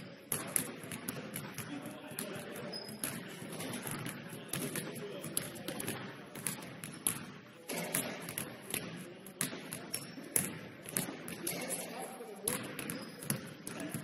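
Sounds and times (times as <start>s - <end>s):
murmur of distant voices: 0.0s - 14.0s
basketball bouncing on wooden floor: 0.3s - 11.8s, 12.5s - 14.0s.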